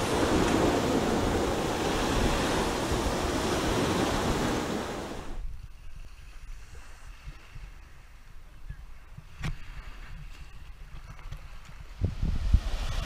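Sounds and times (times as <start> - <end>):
ocean surf: 0.0 - 5.5
wind: 0.0 - 13.0.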